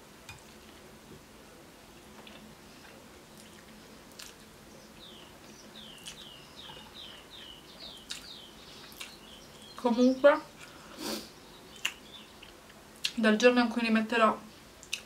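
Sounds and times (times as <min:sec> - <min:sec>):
bird chirping: 0:04.7 - 0:10.4, 0:11.3 - 0:12.6
faint eating clicks: 0:06.0 - 0:09.2, 0:14.8 - 0:15.0.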